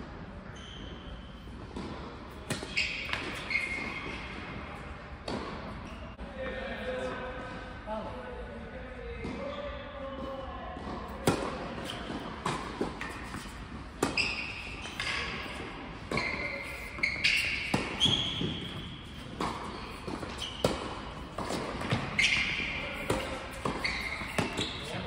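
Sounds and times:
sneaker squeaks on court: 0.5s - 4.6s, 5.4s - 6.2s, 11.2s - 25.0s
racket hitting tennis ball: 1.6s - 4.6s, 10.9s - 25.0s.

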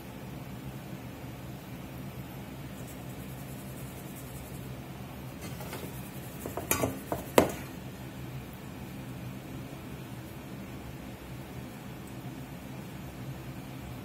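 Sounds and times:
steady low hum: 0.0s - 14.0s
metal mixing bowl clanking: 5.4s - 7.8s.

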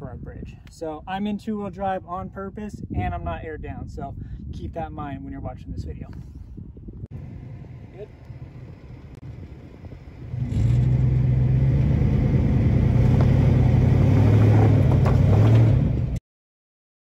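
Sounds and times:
tire spinning in sand: 7.1s - 16.2s
truck engine revving: 7.2s - 16.2s.

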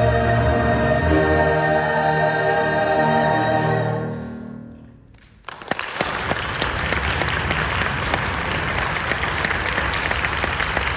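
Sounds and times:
audience applause: 5.4s - 10.9s.

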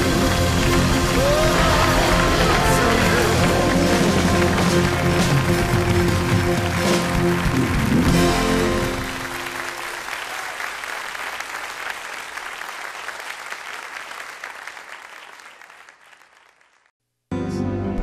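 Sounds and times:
music: 0.0s - 9.9s, 17.3s - 18.0s
congregation applauding: 0.0s - 16.9s.

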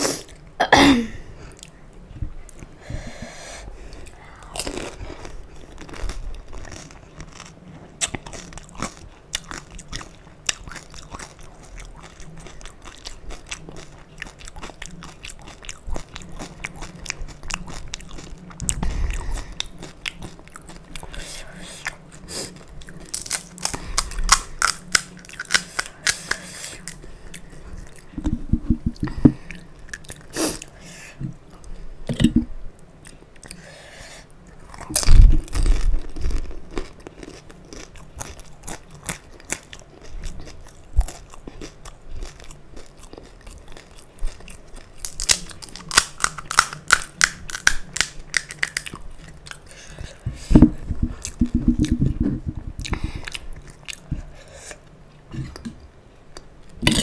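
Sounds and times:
crunching and chewing: 3.9s - 32.3s, 34.4s - 57.0s
crisp shells cracking when bitten: 23.1s - 27.0s, 45.0s - 48.9s.

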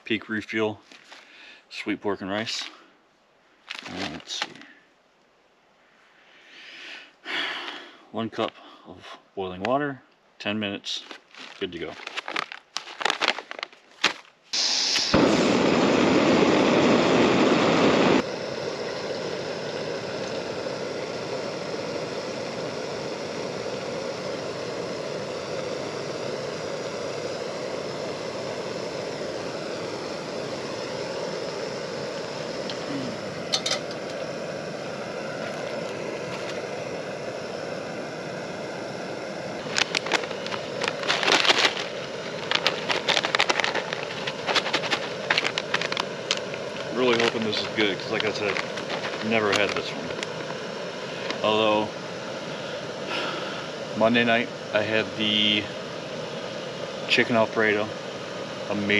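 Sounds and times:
gas burner hissing: 14.5s - 58.9s.

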